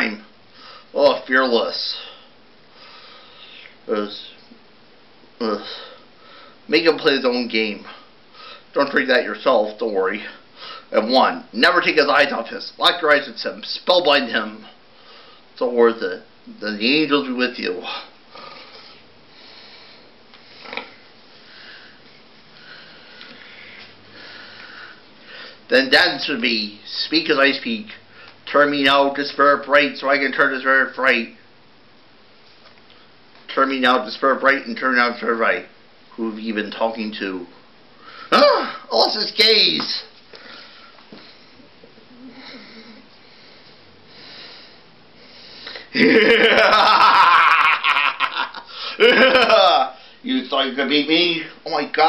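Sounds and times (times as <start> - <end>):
faint steady hiss: 0.0 - 52.0
faint breathing: 0.5 - 1.0, 2.0 - 3.8, 5.5 - 6.7, 10.2 - 10.9, 14.9 - 15.6, 17.9 - 25.7, 37.9 - 38.4, 40.3 - 46.0, 48.7 - 49.0
person laughing loudly: 46.0 - 49.9.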